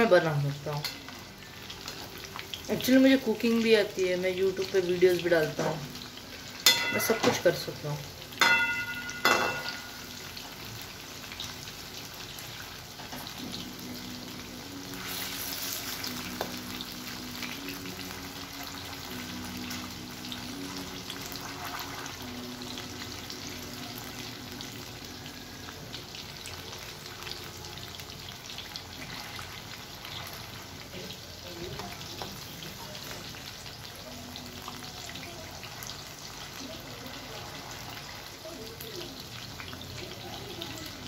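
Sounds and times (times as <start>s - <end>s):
oil sizzling and crackling: 0.0s - 41.0s
metal spoon clanking on pan: 6.6s - 7.6s, 8.4s - 10.0s.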